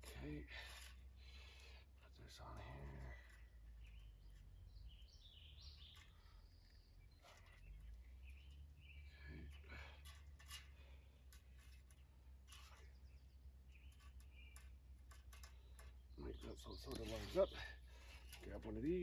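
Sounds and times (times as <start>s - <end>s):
small birds chirping: 0.0s - 19.0s
fence wire clicking: 5.7s - 19.0s.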